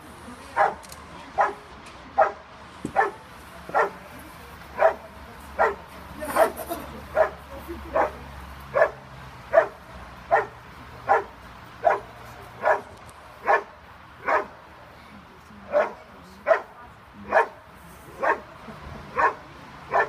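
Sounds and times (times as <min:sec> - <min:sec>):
dog barking: 0:00.6 - 0:00.8, 0:01.4 - 0:01.6, 0:02.2 - 0:02.4, 0:03.0 - 0:04.0, 0:04.8 - 0:06.6, 0:07.2 - 0:14.6, 0:15.7 - 0:16.7, 0:17.3 - 0:17.6, 0:18.2 - 0:18.5, 0:19.1 - 0:20.0.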